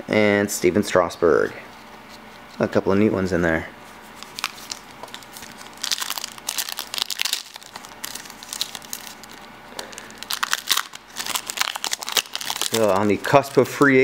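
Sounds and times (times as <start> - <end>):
foil wrapper crinkling: 4.1 - 14.0
foil wrapper tearing: 4.2 - 14.0.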